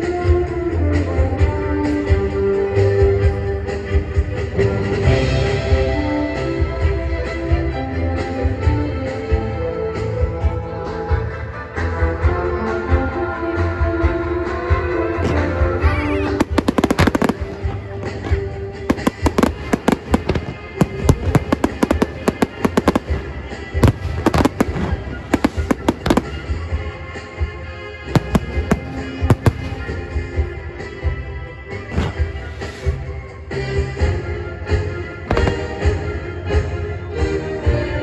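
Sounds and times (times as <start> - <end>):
music soundtrack: 0.0 - 38.0
firework crackles: 15.3 - 31.0
firework shells bursting: 16.4 - 27.2, 28.1 - 30.5.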